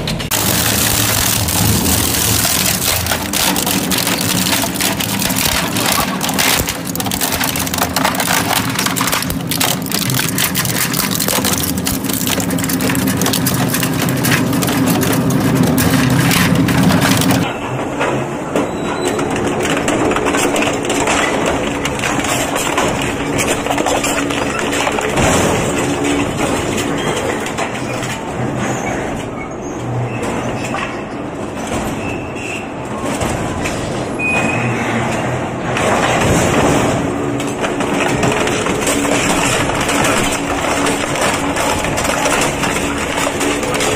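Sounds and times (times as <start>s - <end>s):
shredder crunching plastic and metal: 0.0s - 17.5s, 19.1s - 28.3s, 35.8s - 43.9s
shredder grinding sheet material: 0.3s - 17.5s, 36.9s - 43.9s.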